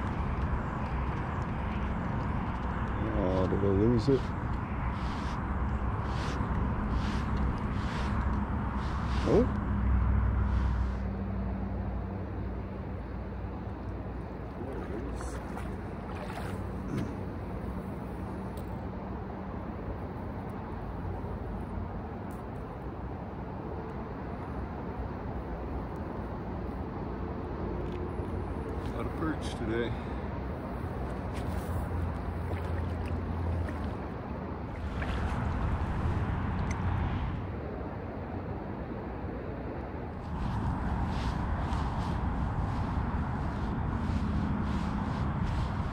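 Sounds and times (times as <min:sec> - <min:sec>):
wind rumble on microphone: 0:00.0 - 0:45.9
wind buffeting microphone: 0:30.2 - 0:37.6, 0:40.1 - 0:45.9.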